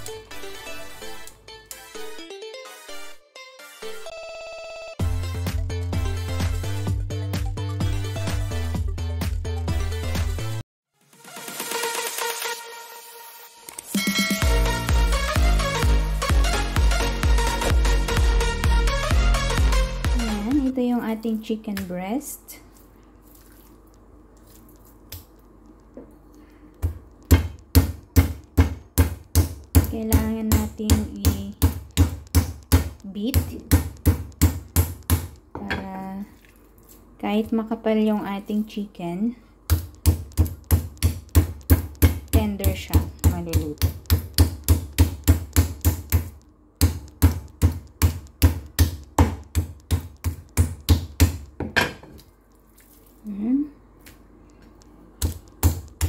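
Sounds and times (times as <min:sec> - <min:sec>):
meat mallet pounding chicken: 0:26.8 - 0:35.5, 0:39.7 - 0:51.9, 0:55.2 - 0:56.0.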